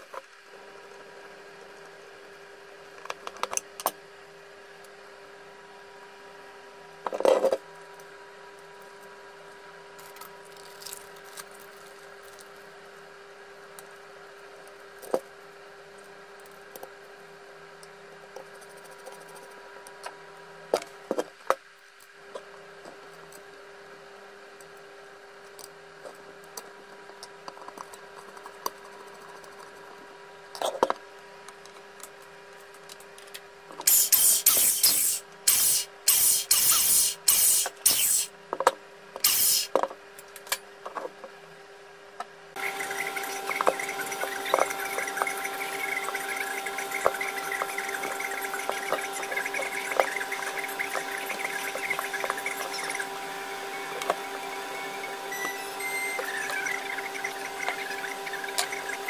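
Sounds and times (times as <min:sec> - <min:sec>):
loud hissing bursts: 0:33.9 - 0:38.3, 0:39.2 - 0:39.7.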